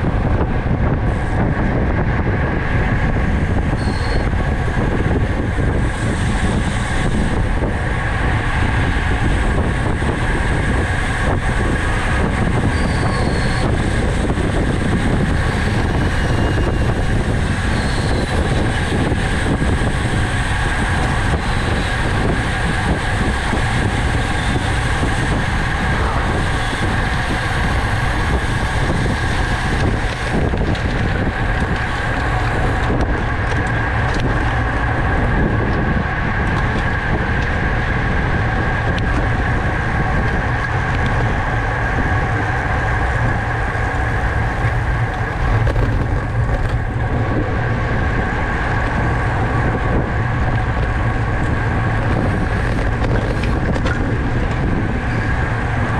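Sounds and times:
wind rushing over microphone: 0.0 - 55.9.

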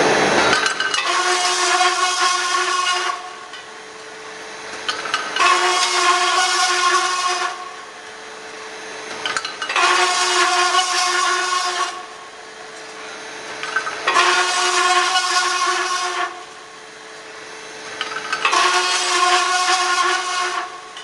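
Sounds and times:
spinning saw blade hum: 0.0 - 16.6
saw cutting metal high whine: 0.0 - 21.0.

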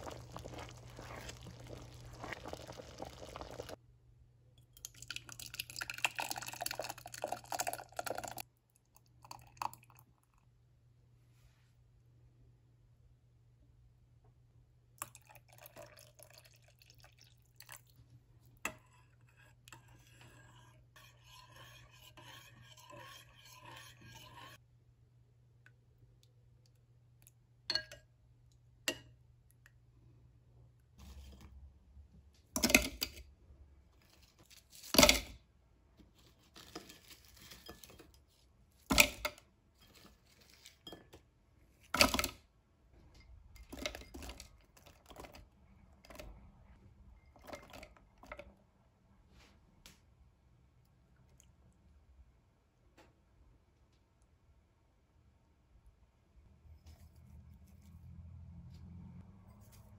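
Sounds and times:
water trickling into a bowl: 0.0 - 3.8, 4.7 - 10.3, 15.0 - 18.0.

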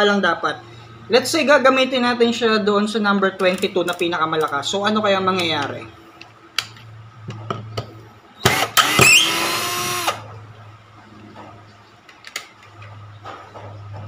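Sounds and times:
cordless drill motor whine: 8.4 - 10.2.

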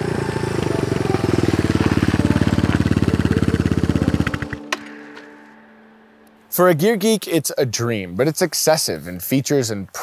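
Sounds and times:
motorcycle riding by: 0.0 - 4.7.

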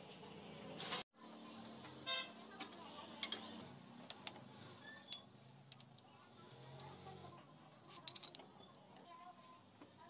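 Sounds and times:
faint metallic clicks and clinks: 5.0 - 9.1.

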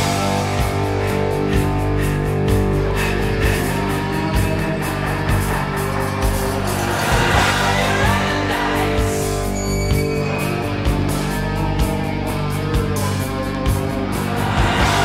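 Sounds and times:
electric guitars: 0.0 - 15.0
drum beat: 0.8 - 9.5, 13.7 - 15.0.

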